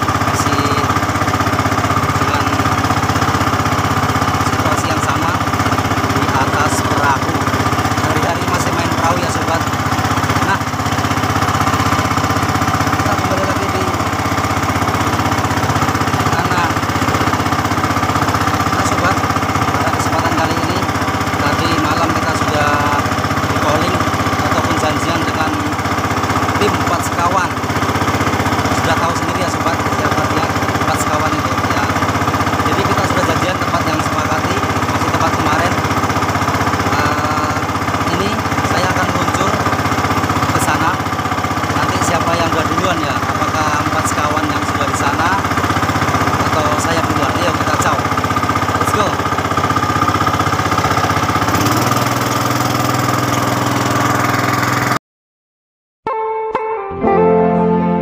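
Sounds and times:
boat engine drone: 0.0s - 55.0s
man's voice: 6.2s - 9.7s, 13.0s - 14.0s, 28.7s - 31.9s.

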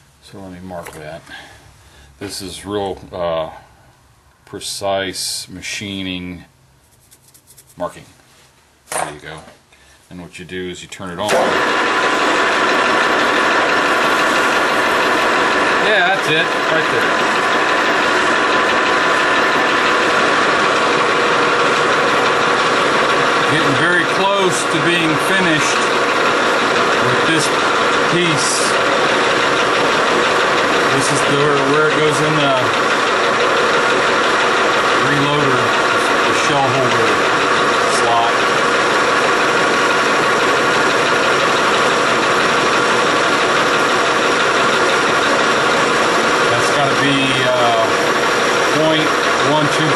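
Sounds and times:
metal lathe running: 11.3s - 49.9s.

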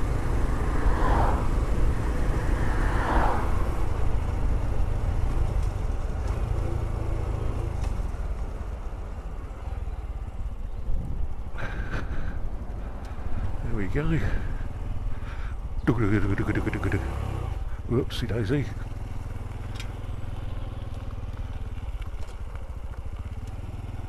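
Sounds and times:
motorcycle engine running: 3.6s - 24.0s
wind noise: 10.8s - 14.5s.

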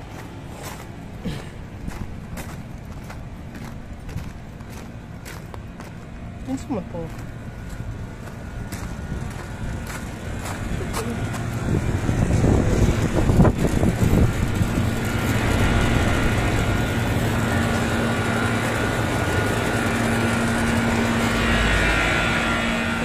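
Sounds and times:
air-conditioning unit humming: 0.0s - 23.0s.

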